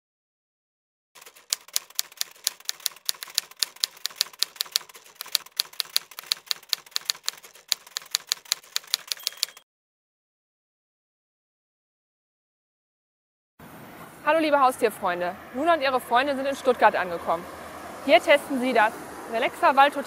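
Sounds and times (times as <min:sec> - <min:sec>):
typewriter bell ring: 0:01.2 - 0:09.6
typewriter keys clacking: 0:01.2 - 0:09.6.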